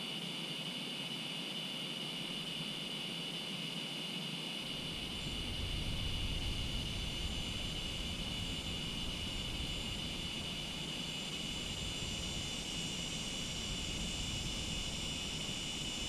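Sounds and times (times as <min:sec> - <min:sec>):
cicadas droning: 0:00.0 - 0:16.0
jet rumble: 0:04.6 - 0:16.0.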